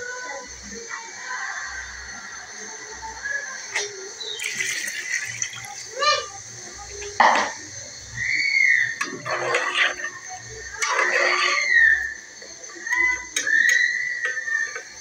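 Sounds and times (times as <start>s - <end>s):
spoon stirring broth: 9.0s - 12.2s.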